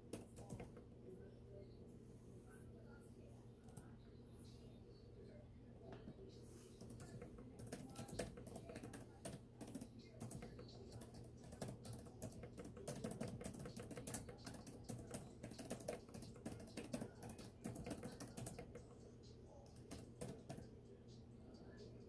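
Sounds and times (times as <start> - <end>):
laptop keyboard typing: 0.0 - 0.9, 6.6 - 20.9.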